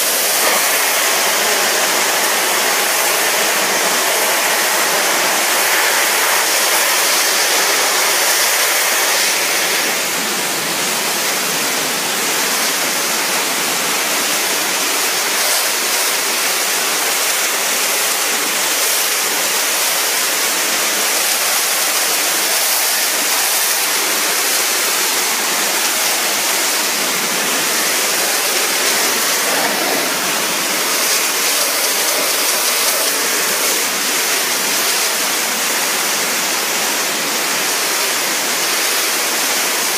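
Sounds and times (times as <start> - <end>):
pressure washer spraying stone: 0.0 - 39.9.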